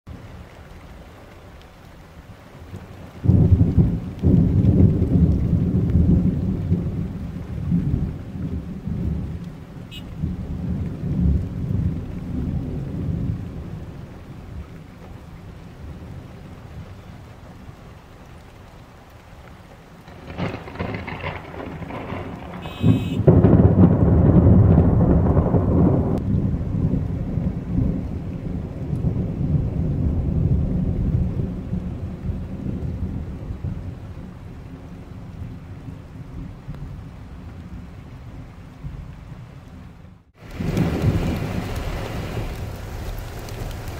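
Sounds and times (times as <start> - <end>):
rain falling: 0.1 - 43.9
thunder rumbling: 2.3 - 18.2, 20.0 - 39.6, 40.4 - 43.9.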